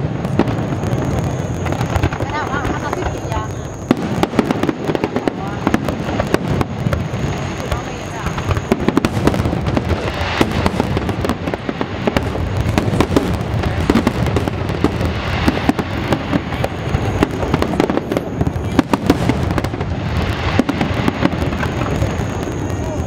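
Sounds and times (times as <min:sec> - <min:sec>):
firework shells bursting: 0:00.0 - 0:23.0.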